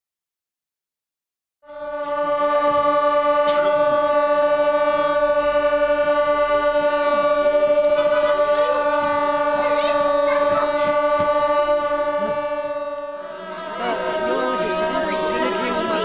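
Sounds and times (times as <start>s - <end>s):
shawm holding long note: 1.6s - 16.0s.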